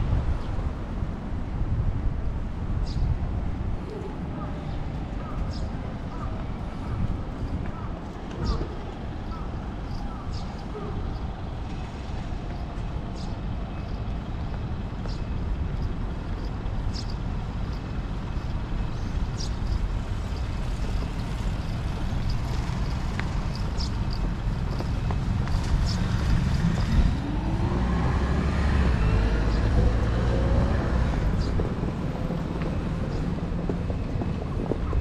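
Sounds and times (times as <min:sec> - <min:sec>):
road traffic rumble: 0:00.0 - 0:35.0
vehicle accelerating: 0:20.7 - 0:33.7.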